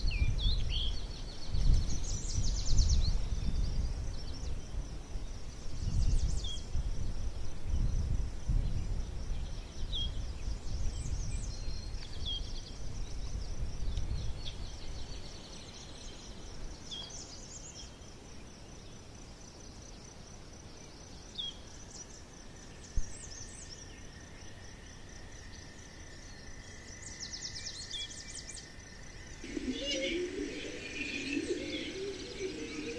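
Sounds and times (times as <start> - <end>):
bird chirps: 29.4 - 32.9
high-pitched pulsing trill: 29.4 - 32.9.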